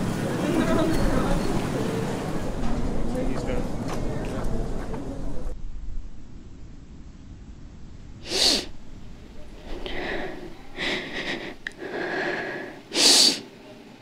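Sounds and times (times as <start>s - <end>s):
girl sniffing: 8.2s - 8.7s, 9.6s - 13.4s
girl sobbing: 9.8s - 11.7s.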